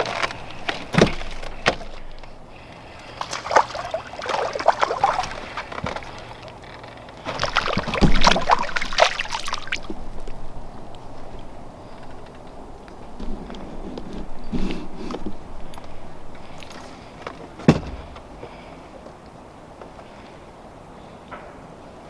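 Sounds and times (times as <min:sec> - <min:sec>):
fishing gear knocks and rattles: 0:00.0 - 0:18.3
water splashing: 0:00.8 - 0:11.5
fish thrashing at the surface: 0:02.9 - 0:06.5, 0:07.2 - 0:10.1.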